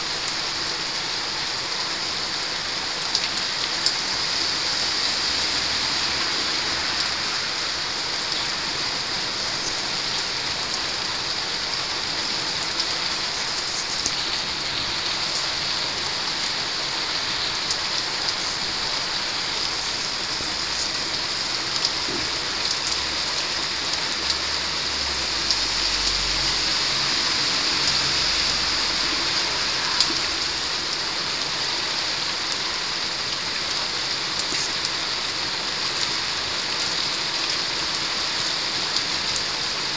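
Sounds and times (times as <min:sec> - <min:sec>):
heavy rain on roofs: 0:00.0 - 0:39.9
dripping ticks: 0:25.3 - 0:26.6.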